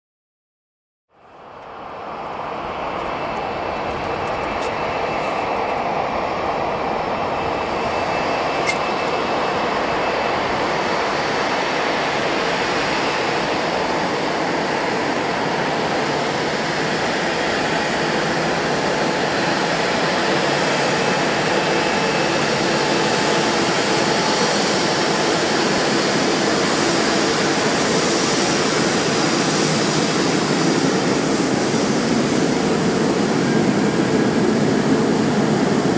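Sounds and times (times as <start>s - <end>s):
jet engines whining: 1.3s - 35.9s.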